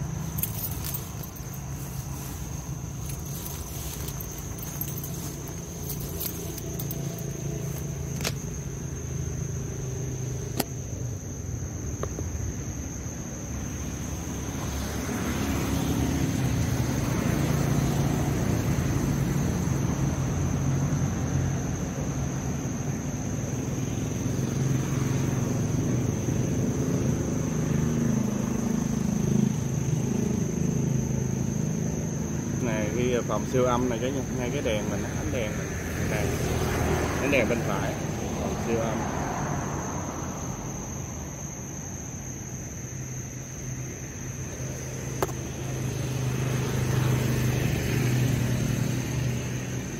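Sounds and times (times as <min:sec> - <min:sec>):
low vehicle rumble: 0:00.0 - 0:11.2.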